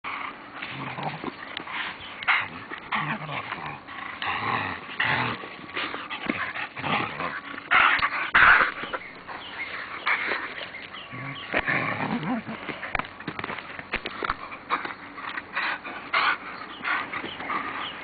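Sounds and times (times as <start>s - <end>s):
dog growling: 0.1s - 13.0s.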